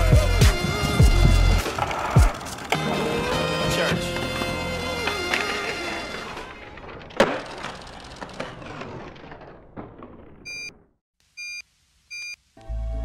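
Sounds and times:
skateboard wheels rolling on concrete: 0.0 - 11.0
skateboard landing clack: 6.5 - 10.4
short electronic beeps: 10.5 - 10.8, 11.4 - 12.4.

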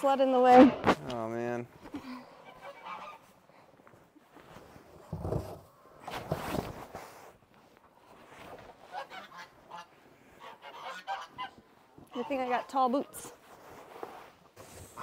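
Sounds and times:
geese honking: 2.4 - 3.4, 8.8 - 13.2.

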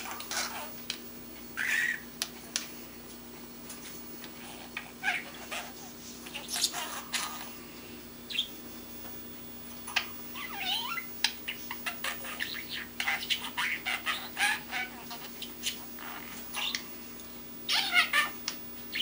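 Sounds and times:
budgerigar chirping and squawking: 1.6 - 2.1, 4.8 - 7.4, 8.3 - 8.6, 9.9 - 16.9, 17.7 - 19.0.

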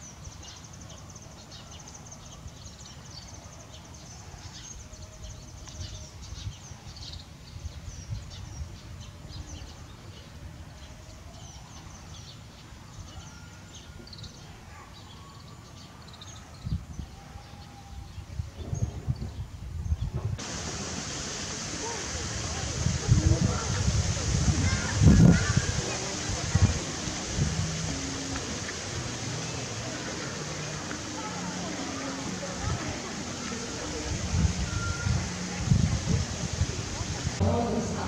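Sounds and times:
low rumbling noise: 20.4 - 38.0.

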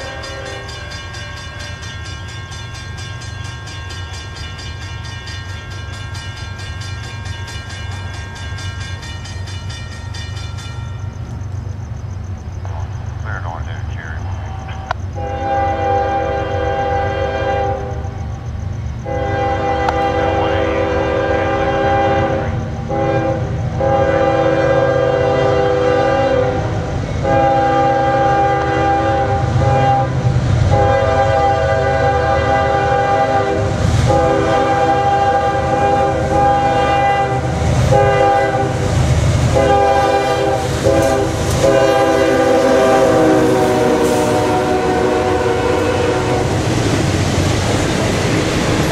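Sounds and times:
train engines and wheels rumbling: 0.0 - 48.9
locomotive air horn blasts: 15.2 - 18.0, 19.0 - 46.6.

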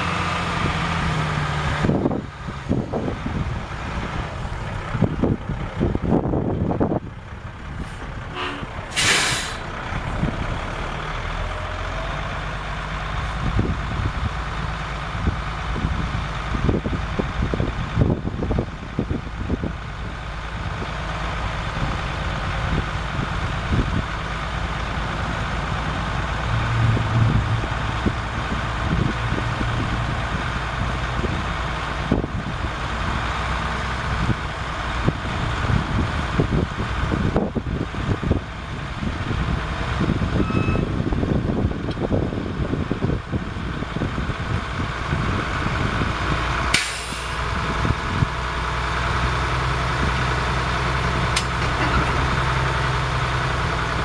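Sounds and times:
diesel engine running: 0.0 - 54.0
air hiss: 8.9 - 9.7, 46.8 - 47.4.

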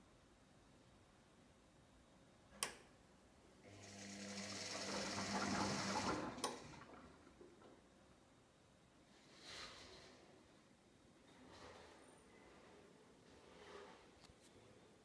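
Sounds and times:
washing machine drum motor hum: 3.8 - 7.7.

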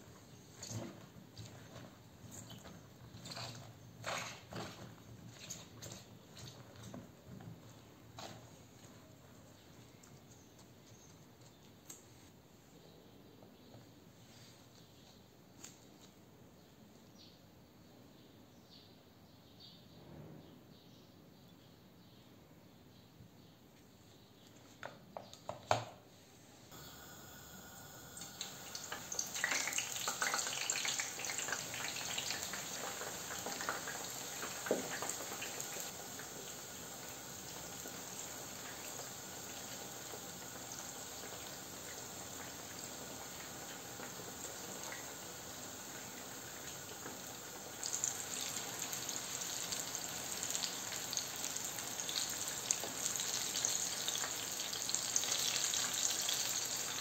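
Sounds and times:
vegetables deep-frying in oil: 0.0 - 11.2, 26.7 - 57.0.

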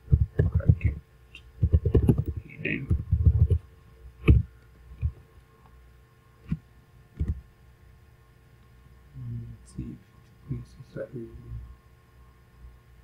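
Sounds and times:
faint electrical hum: 0.0 - 13.0
computer key presses: 1.6 - 3.6.

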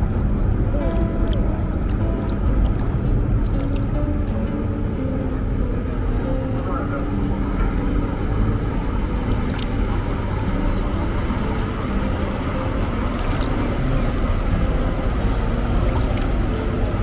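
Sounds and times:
water churning in wake: 0.0 - 4.2, 8.7 - 17.0
ferry engines droning: 0.0 - 17.0.

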